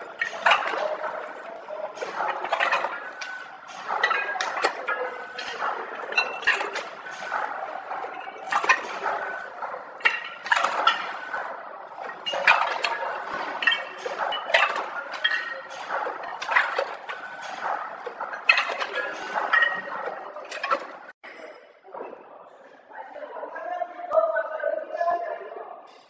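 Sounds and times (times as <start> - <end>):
packing machine clacking: 0.0 - 21.1.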